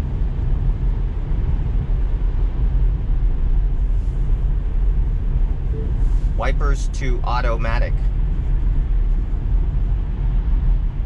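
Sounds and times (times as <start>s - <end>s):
road and tyre noise in car cabin: 0.0s - 11.0s.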